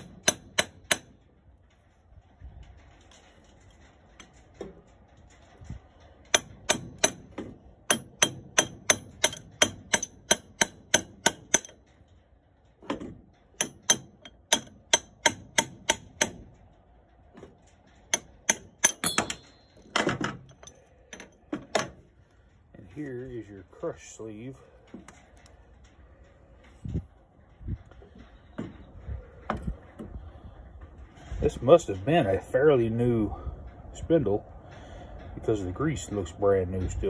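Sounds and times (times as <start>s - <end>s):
hammer striking steel punch: 6.4s - 11.8s, 18.2s - 20.1s
short metallic ring: 18.8s - 20.0s.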